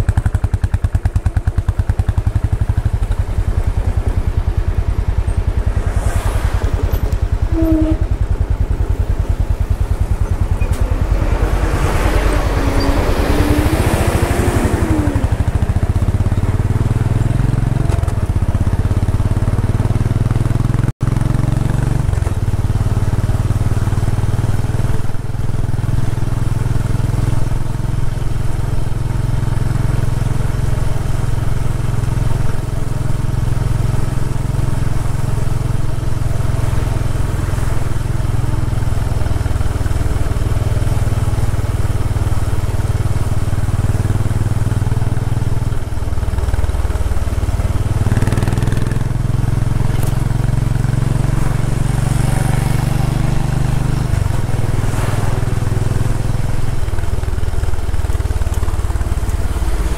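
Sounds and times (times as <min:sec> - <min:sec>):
motorcycle engine: 0:00.0 - 0:59.9
traffic noise: 0:00.0 - 0:59.9.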